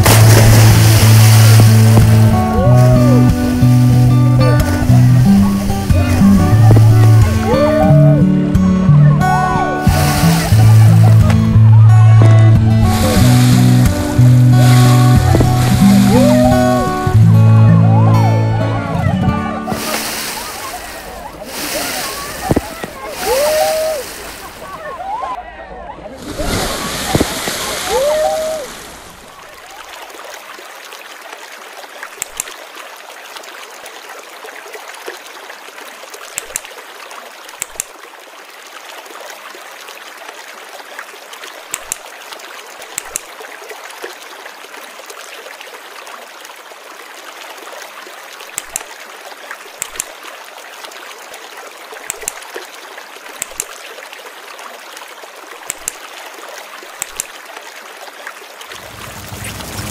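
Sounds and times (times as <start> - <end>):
running water: 0.0 - 59.9
sharp clicks: 32.2 - 32.5, 55.7 - 56.0.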